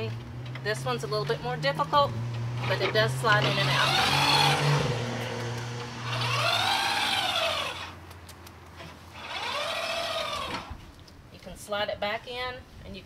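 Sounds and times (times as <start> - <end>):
wheelchair ramp scraping whine: 5.7 - 7.9, 9.1 - 10.8.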